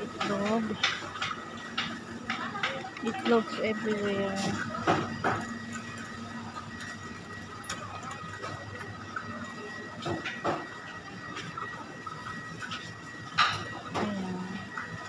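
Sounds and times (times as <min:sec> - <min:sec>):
steady hum with high tone: 0:00.0 - 0:15.0.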